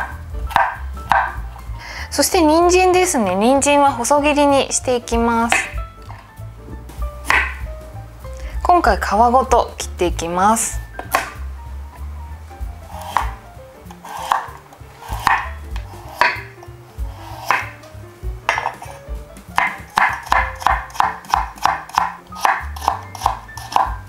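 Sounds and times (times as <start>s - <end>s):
knife cutting carrot: 0.0s - 1.4s, 5.4s - 6.3s, 7.2s - 7.7s, 11.0s - 11.4s, 12.9s - 24.0s
knife knocking on wooden board: 0.5s - 1.5s, 5.5s - 7.7s, 11.0s - 11.4s, 15.2s - 16.6s, 17.4s - 17.8s, 18.4s - 19.0s, 19.6s - 23.9s.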